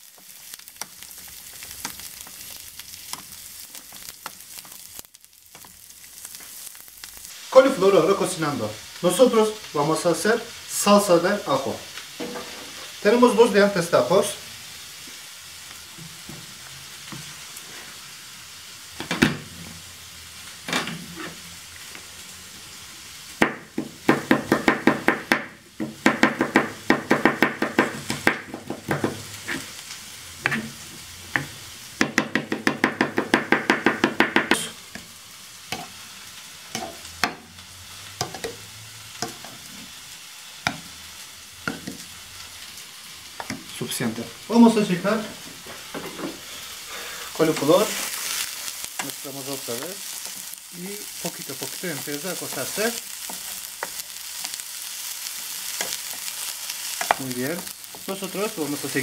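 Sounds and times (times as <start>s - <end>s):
food sizzling in butter: 0.0s - 59.0s
knife chopping on plastic board: 31.4s - 34.6s.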